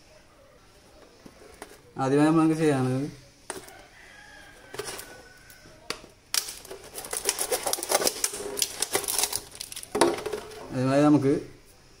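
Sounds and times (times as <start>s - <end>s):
plastic bottle crinkling: 6.3s - 10.7s.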